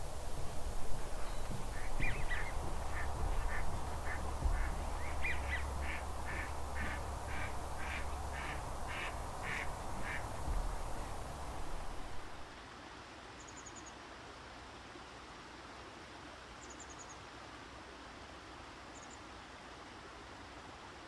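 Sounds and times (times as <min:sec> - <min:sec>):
low steady rumble: 0:00.0 - 0:12.5
waterfowl calling: 0:00.0 - 0:12.5.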